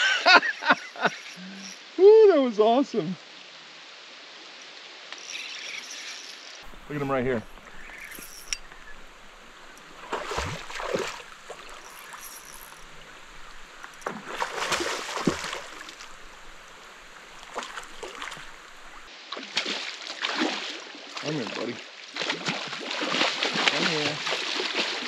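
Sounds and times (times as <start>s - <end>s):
rain falling on river: 6.6s - 19.1s
fish splashing in water: 6.7s - 20.8s.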